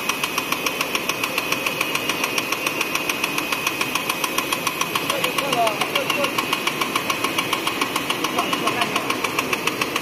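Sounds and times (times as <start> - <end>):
cutting press stamping: 0.0 - 10.0
machine humming: 0.0 - 10.0.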